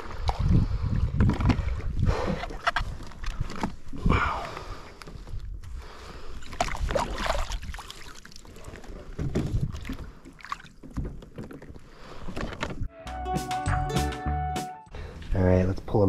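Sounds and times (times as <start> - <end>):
wind on microphone: 0.0 - 4.4
water lapping at kayak hull: 0.0 - 12.5.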